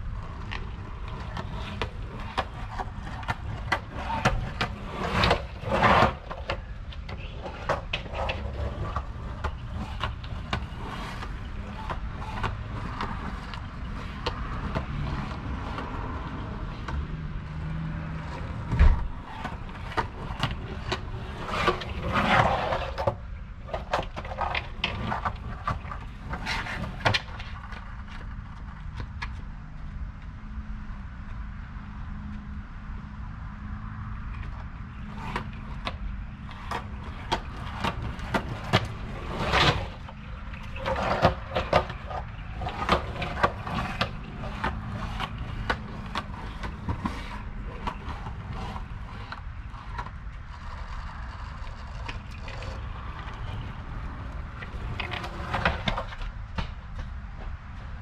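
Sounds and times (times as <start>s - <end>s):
skateboard clacking: 0.0s - 29.5s, 34.2s - 58.0s
skateboard wheels rolling on asphalt: 0.0s - 58.0s.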